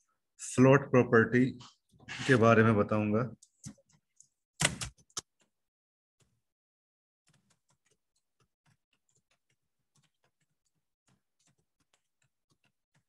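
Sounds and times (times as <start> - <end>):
keyboard typing: 7.3 - 13.0.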